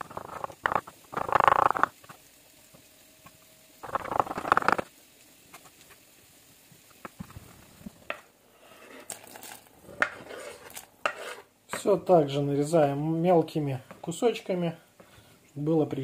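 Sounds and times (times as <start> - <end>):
knife slicing on wooden board: 10.0 - 11.5.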